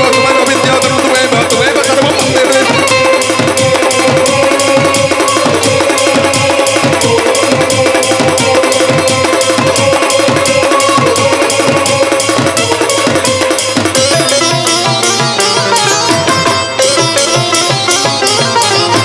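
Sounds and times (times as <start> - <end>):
fast drum rhythm: 0.0 - 19.0
held melodic note: 13.5 - 19.0.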